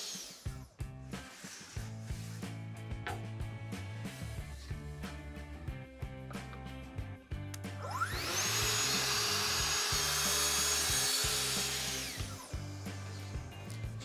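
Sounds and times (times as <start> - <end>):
saw cutting through door panel: 7.8 - 14.0
track saw whine: 7.8 - 14.0.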